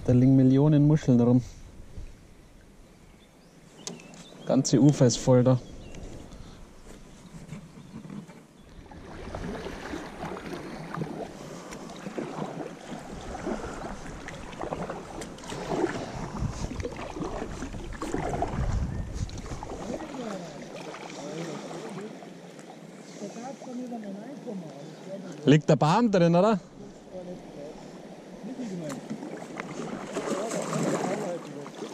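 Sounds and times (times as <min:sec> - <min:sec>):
water sloshing against kayak: 0:05.7 - 0:25.5, 0:26.7 - 0:31.9
paddle strokes splashing: 0:06.0 - 0:23.9, 0:26.7 - 0:31.9.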